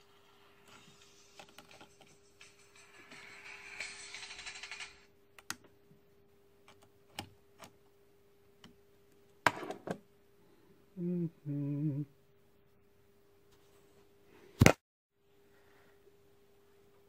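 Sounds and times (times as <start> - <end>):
faint steady hum: 5.1 - 17.0
man humming: 10.9 - 12.2.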